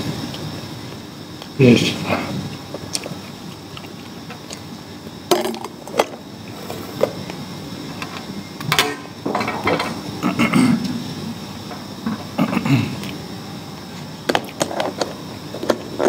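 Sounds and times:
utensils clattering: 8.0 - 10.1.

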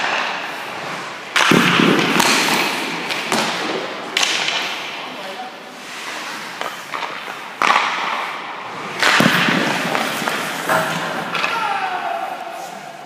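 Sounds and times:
skate blades scraping ice: 0.0 - 13.0
stick cracking on puck: 1.3 - 5.0, 6.5 - 11.8.

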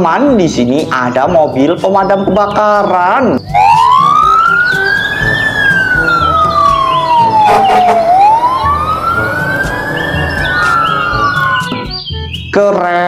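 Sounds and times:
fire truck siren wailing: 3.4 - 12.0
short noisy blast: 3.7 - 11.7.

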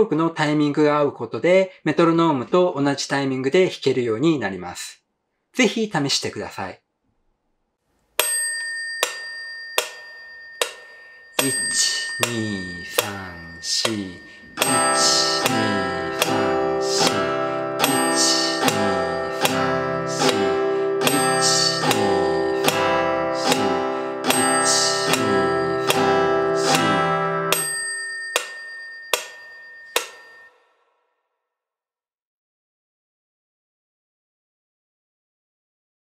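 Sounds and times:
metronome clicks: 8.2 - 30.6
acoustic guitar strumming: 10.6 - 30.3.

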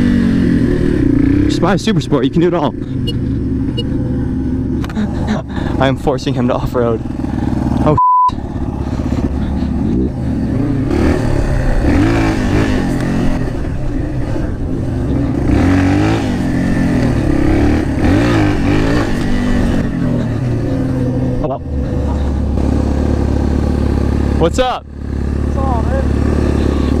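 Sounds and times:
motorcycle engine revving: 0.0 - 27.0
short censor beep: 7.9 - 8.4.

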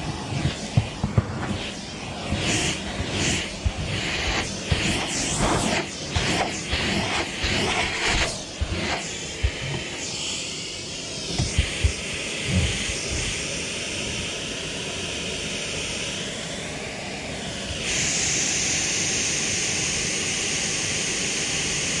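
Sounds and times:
car vacuum hose hissing: 0.0 - 13.4.

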